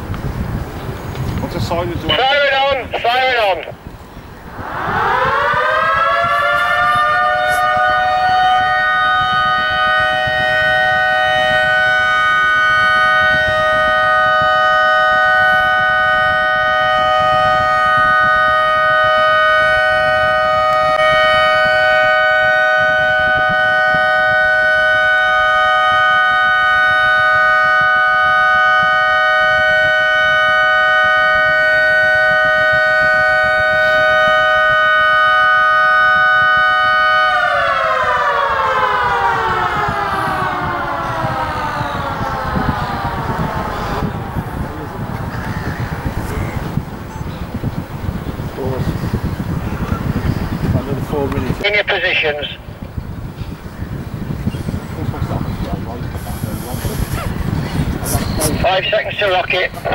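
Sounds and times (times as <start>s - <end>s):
warning siren wailing: 1.7s - 59.9s.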